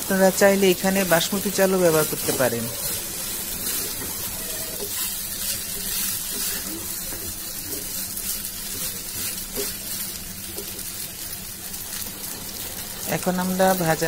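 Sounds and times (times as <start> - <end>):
rice frying in oil: 0.0 - 14.0
spatula scraping pan: 0.5 - 10.9.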